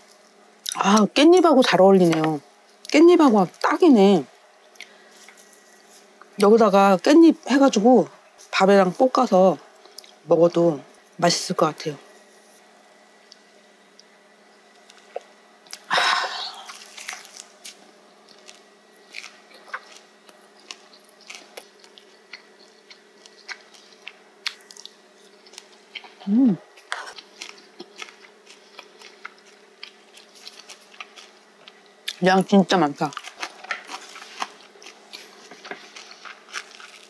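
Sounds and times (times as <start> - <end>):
crunchy chewing: 12.1 - 15.9, 16.5 - 32.2, 33.0 - 37.0
person humming: 26.2 - 26.6.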